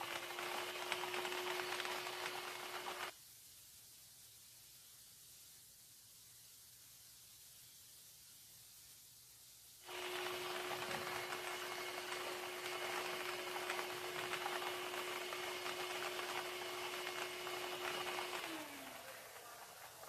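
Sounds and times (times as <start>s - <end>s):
machine motor hum: 0.0s - 3.1s, 9.9s - 20.0s.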